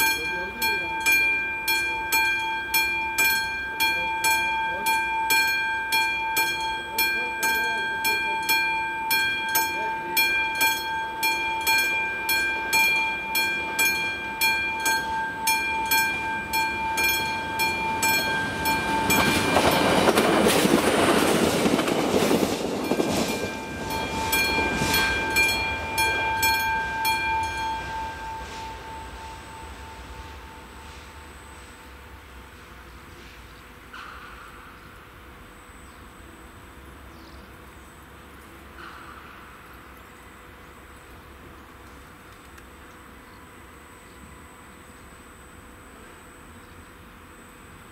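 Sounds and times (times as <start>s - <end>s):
level crossing bell ringing: 0.0s - 20.4s, 22.8s - 32.0s
train rumbling past: 0.0s - 47.9s.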